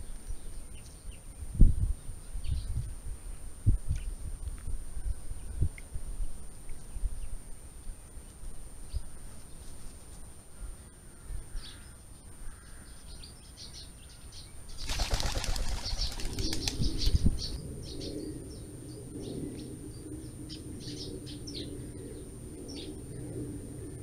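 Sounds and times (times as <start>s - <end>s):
small birds chirping: 10.6s - 23.4s
pigeon wings clattering: 14.8s - 17.2s.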